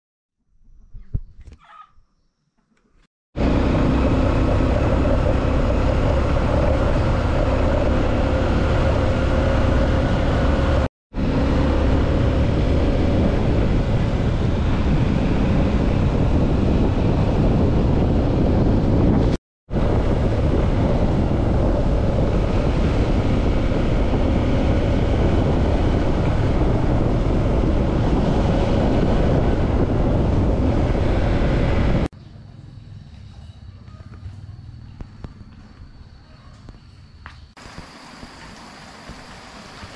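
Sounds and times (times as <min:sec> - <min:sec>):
dirt bike engine running: 0:03.4 - 0:32.1
wind buffeting microphone: 0:03.4 - 0:32.1.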